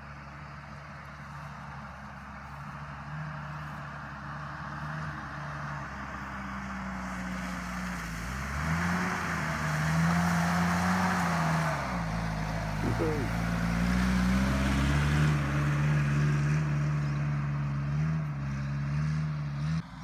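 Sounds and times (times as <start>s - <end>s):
suv engine revving: 7.2s - 19.8s.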